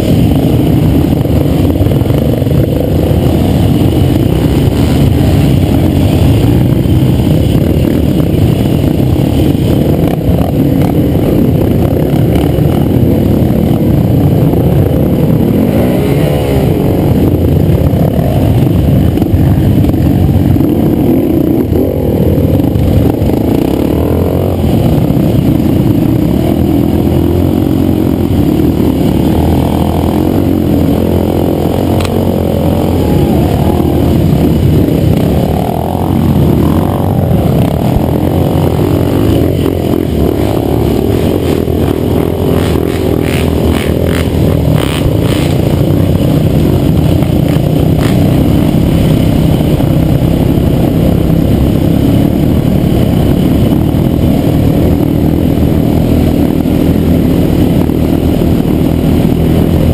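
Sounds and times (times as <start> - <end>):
dirt bike engines: 0.0 - 59.9
quad bike engine under load: 0.0 - 59.9.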